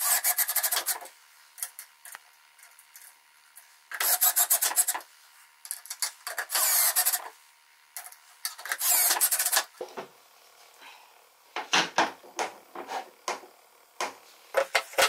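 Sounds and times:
cordless drill driving screws: 6.5s - 7.2s, 8.8s - 9.6s.

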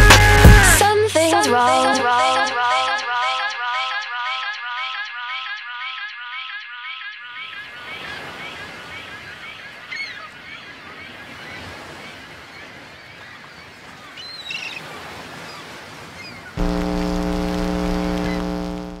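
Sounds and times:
loud electric glitch buzz: 16.6s - 19.0s.

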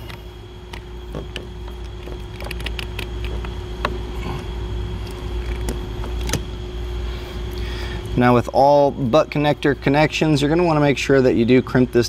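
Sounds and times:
wire stripper clicks: 0.0s - 4.0s
steady low hum: 0.0s - 12.0s.

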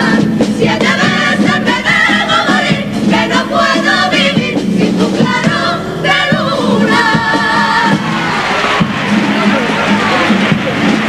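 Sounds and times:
female chorus singing in harmony: 0.0s - 8.4s
guitars accompanying: 0.0s - 11.0s.

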